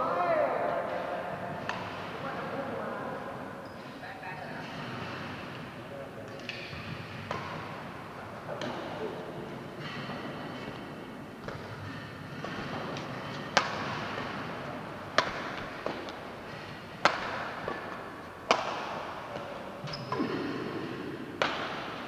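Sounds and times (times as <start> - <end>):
badminton racket smacking shuttlecock: 11.4 - 19.7.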